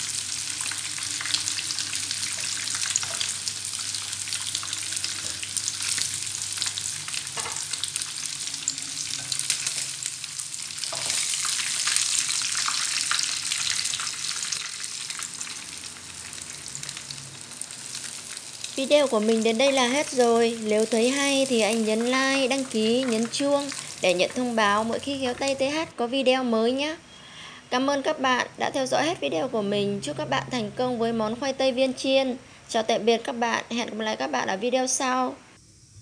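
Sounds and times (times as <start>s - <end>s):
food deep-frying in oil: 0.0s - 25.9s.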